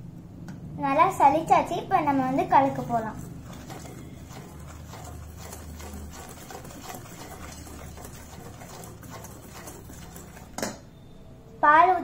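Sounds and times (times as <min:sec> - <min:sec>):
wire whisk scraping metal bowl: 0:02.5 - 0:10.7
whisk clinking on bowl: 0:02.6 - 0:10.8.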